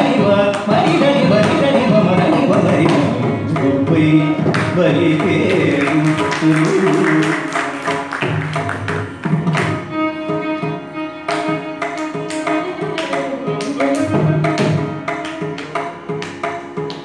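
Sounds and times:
violin melody: 0.0 - 17.0.

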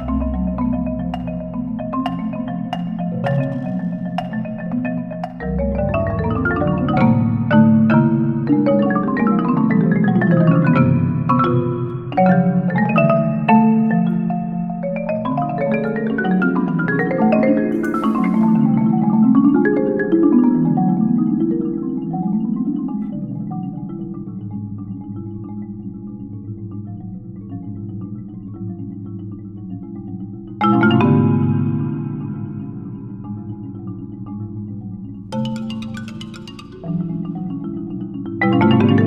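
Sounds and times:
marimbas playing chords: 0.0 - 39.0
short hiss: 17.8 - 18.7.

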